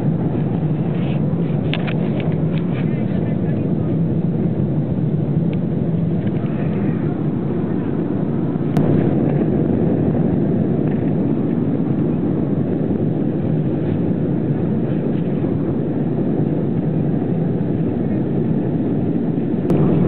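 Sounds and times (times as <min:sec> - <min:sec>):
airliner cabin rumble: 0:00.0 - 0:20.0.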